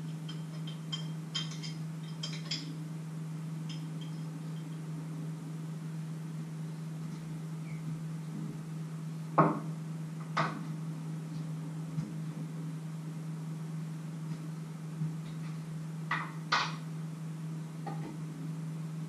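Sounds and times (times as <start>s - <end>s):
knocks on wooden cutting board: 9.4s - 9.6s.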